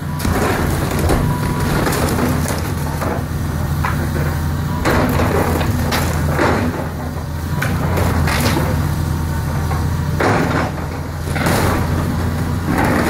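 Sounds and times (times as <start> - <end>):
excavator diesel engine running: 0.0 - 13.0
timber breaking and debris falling: 0.2 - 4.2, 4.8 - 7.1.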